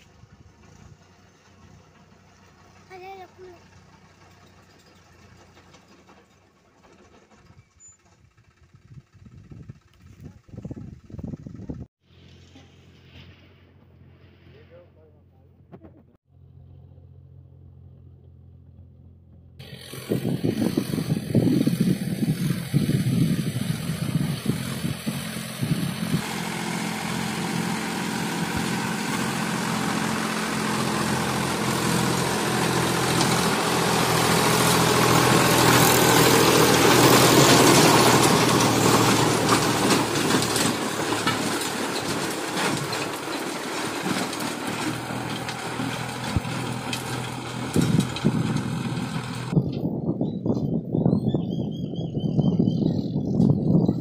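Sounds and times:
tractor diesel engine under load: 0:00.0 - 0:50.0
tines churning earth: 0:19.6 - 0:49.6.

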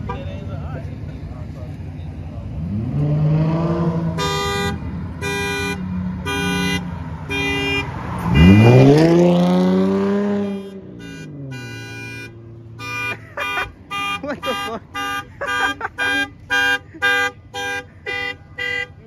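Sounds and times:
car horn honks: 0:00.0 - 0:00.6, 0:04.0 - 0:09.0, 0:10.1 - 0:19.0
car engine revving: 0:00.0 - 0:19.0.

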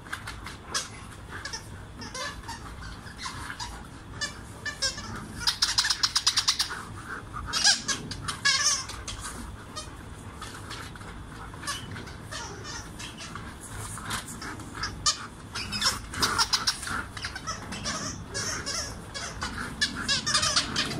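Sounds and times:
squeaky dog toy squeaking: 0:00.8 - 0:06.7, 0:07.5 - 0:09.2, 0:11.6 - 0:13.4, 0:14.8 - 0:20.9.

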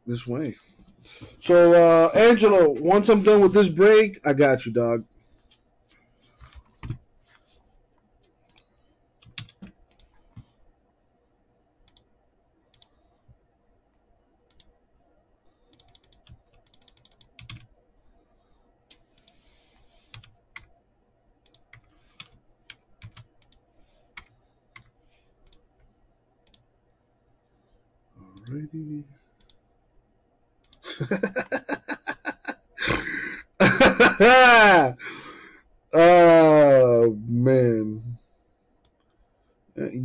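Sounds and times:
faint keyboard typing: 0:05.2 - 0:10.6, 0:12.7 - 0:13.4, 0:14.4 - 0:14.8, 0:15.5 - 0:17.8, 0:18.4 - 0:20.8, 0:21.4 - 0:26.7, 0:29.2 - 0:29.7, 0:38.8 - 0:39.5.

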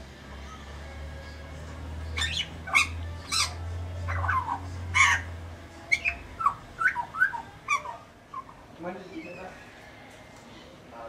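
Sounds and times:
bird calling: 0:02.2 - 0:05.3, 0:05.9 - 0:09.6.

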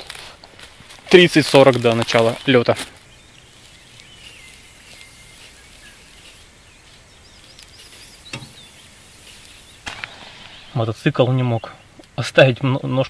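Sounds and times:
small birds singing: 0:01.1 - 0:13.0.

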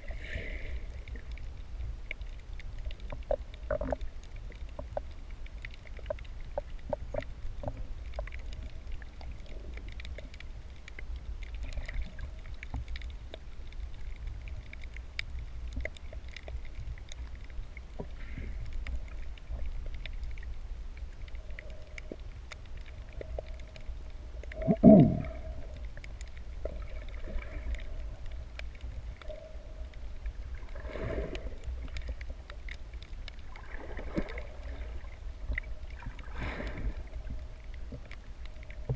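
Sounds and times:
underwater low rumble: 0:00.0 - 0:38.9.

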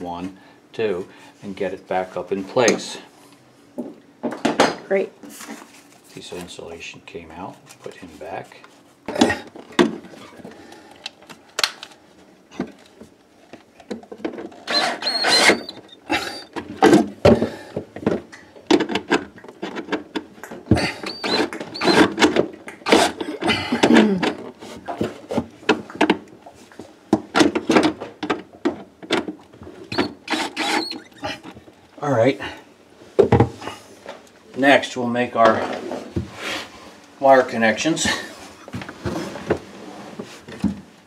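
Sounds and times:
cordless drill driving screws: 0:14.6 - 0:15.8, 0:29.9 - 0:31.1.

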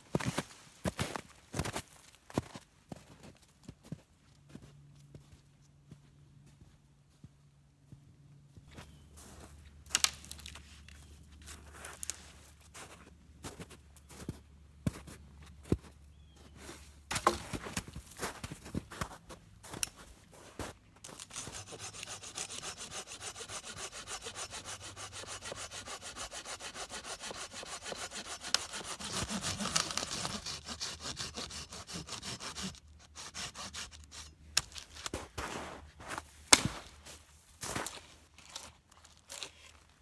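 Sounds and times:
hand saw cutting a branch: 0:09.9 - 0:10.6, 0:17.1 - 0:17.7, 0:21.0 - 0:35.2, 0:36.1 - 0:37.0
boot kicking branch: 0:17.1 - 0:18.2, 0:36.5 - 0:38.0.

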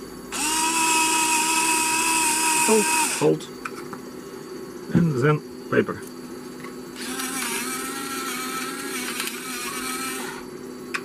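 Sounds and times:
electric pepper mill grinding: 0:00.3 - 0:03.4, 0:07.0 - 0:10.5.

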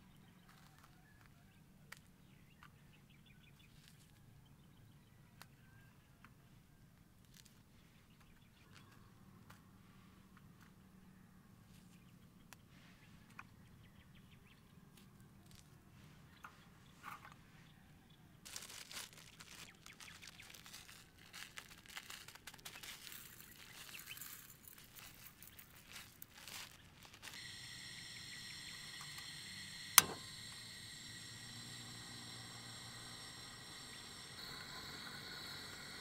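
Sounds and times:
stove burner hissing: 0:27.3 - 0:36.0
stove click: 0:28.9 - 0:31.0.

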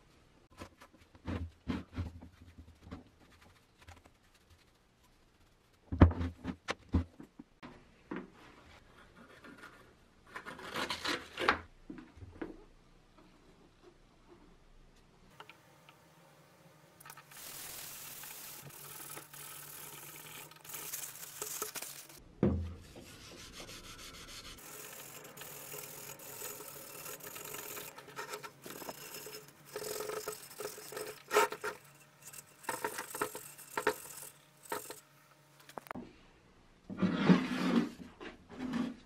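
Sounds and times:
thump: 0:22.4 - 0:22.8
abrasive pad scrubbing metal: 0:23.1 - 0:35.0.

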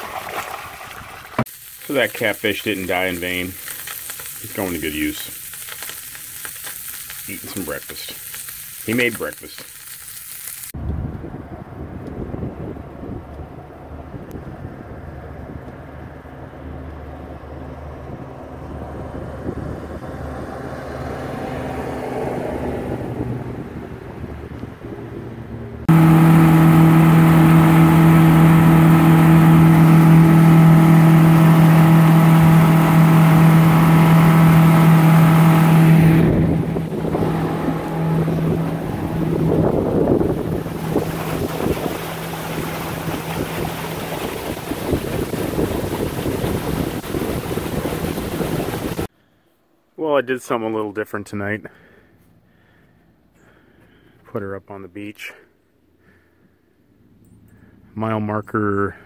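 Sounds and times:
outboard motor running: 0:00.0 - 0:11.1, 0:25.9 - 0:49.1.

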